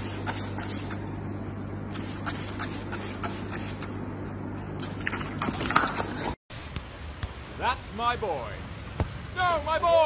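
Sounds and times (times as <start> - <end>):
spray bottle squirting: 0.0 - 1.0, 1.9 - 4.0
steady low hum: 0.0 - 7.6.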